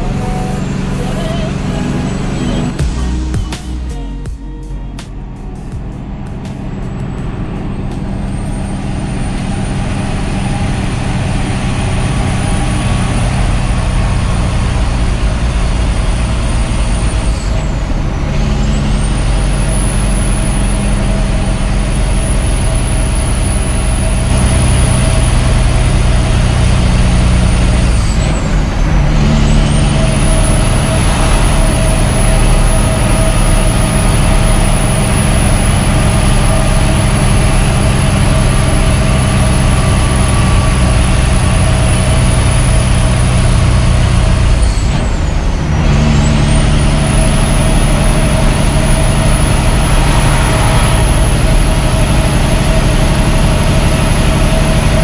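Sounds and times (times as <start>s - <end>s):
diesel engine running: 0.0s - 55.0s
turbo whistle: 46.2s - 54.7s.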